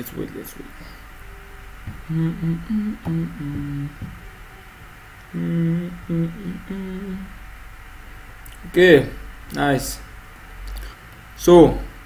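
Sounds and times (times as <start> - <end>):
man humming: 0.9 - 7.4.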